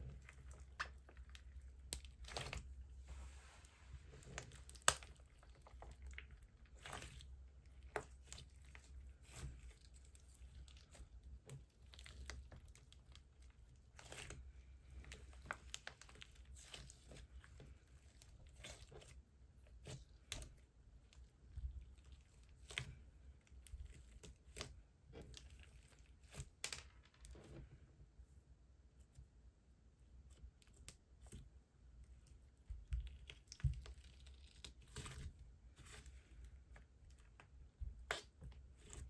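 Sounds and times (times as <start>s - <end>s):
slime crackling and snapping: 4.2s - 7.2s.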